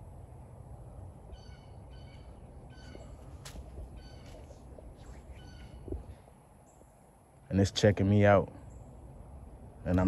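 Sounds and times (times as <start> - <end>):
low outdoor rumble: 0.0 - 10.0
bird calling: 1.2 - 7.0.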